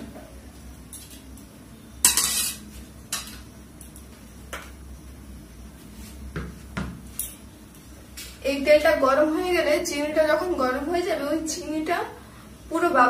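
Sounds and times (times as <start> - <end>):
utensils and dishes clinking: 2.0 - 3.5.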